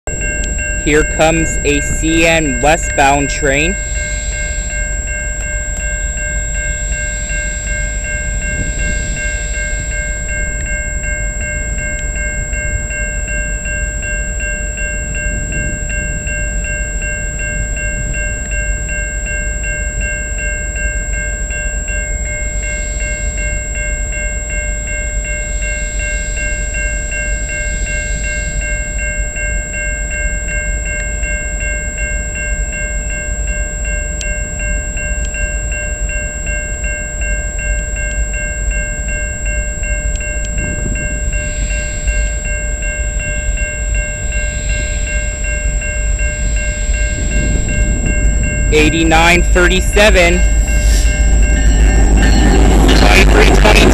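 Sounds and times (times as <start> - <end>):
railroad crossing bell ringing: 0.1 - 53.9
train locomotive rumble: 0.1 - 53.9.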